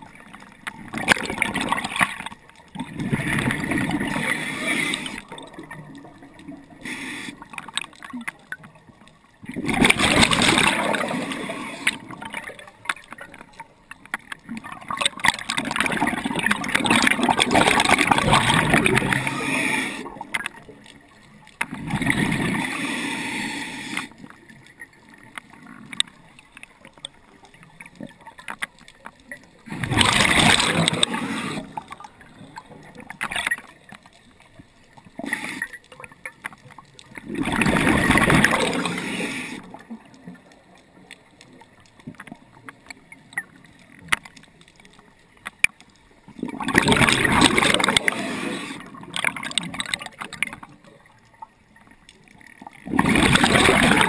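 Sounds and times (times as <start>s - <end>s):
underwater bubbles gurgling: 0.0s - 54.0s
diver breathing underwater: 3.1s - 5.3s, 6.7s - 7.6s, 10.0s - 12.2s, 17.4s - 20.3s, 22.0s - 24.3s, 29.7s - 32.0s, 35.2s - 35.8s, 37.5s - 39.9s, 46.8s - 49.1s.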